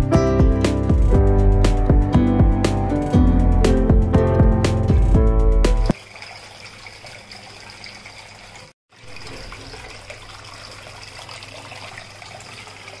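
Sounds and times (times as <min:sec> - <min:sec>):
fountain water trickling: 0:05.8 - 0:13.0.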